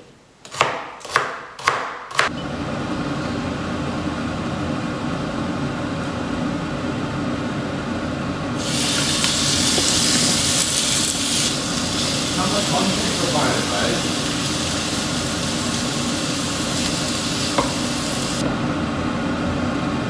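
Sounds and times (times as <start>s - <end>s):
mechanical hum: 0.0s - 20.0s
knife chopping on cutting board: 0.5s - 2.3s
meat sizzling in frying pan: 8.6s - 18.4s.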